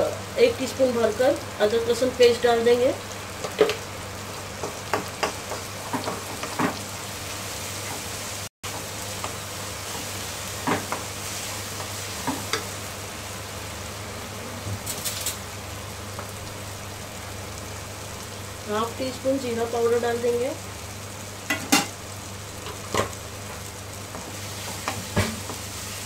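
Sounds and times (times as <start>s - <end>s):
masala sizzling in a wok: 0.0s - 26.0s
spatula knocking and scraping pan: 4.6s - 6.9s, 8.7s - 12.7s, 24.1s - 25.6s.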